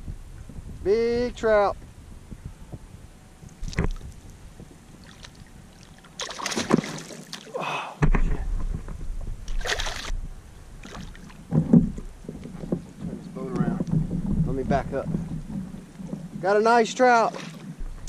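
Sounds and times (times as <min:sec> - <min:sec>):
fish splashing in water: 0:05.0 - 0:07.6, 0:09.5 - 0:10.1.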